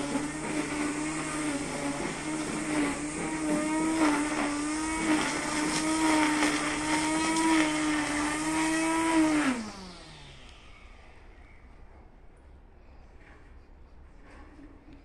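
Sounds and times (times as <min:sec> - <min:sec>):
brush cutter running: 0:00.0 - 0:11.2.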